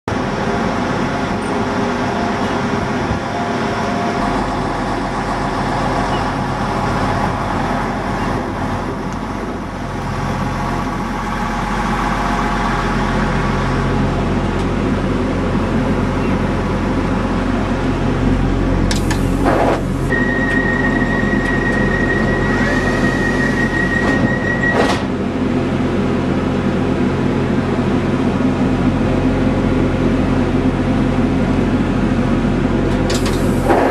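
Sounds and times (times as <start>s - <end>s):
diesel train engine running: 0.1s - 33.9s
high warning tone: 18.9s - 24.9s.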